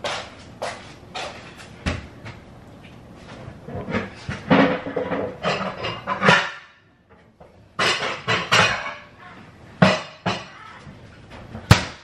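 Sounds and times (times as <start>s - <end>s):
kitchen dishes clattering: 3.7s - 6.8s, 7.8s - 9.1s, 9.8s - 10.6s.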